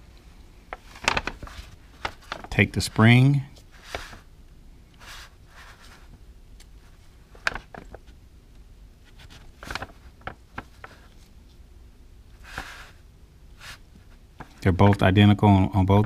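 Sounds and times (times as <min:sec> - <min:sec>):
soft rustling: 0:00.2 - 0:04.3, 0:05.0 - 0:08.2, 0:09.0 - 0:11.6, 0:12.3 - 0:14.7.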